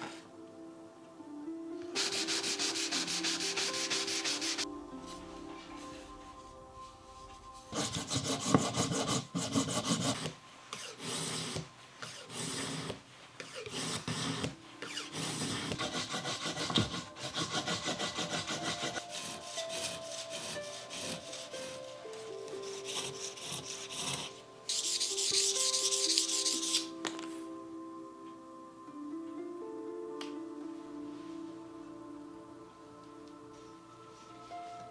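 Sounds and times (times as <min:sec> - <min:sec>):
soft music: 0:00.0 - 0:34.9
brush scrubbing bamboo rod: 0:02.0 - 0:04.7, 0:07.7 - 0:21.9, 0:22.6 - 0:26.9
cloth rubbing rod: 0:02.0 - 0:06.1, 0:07.7 - 0:22.0, 0:22.6 - 0:27.0.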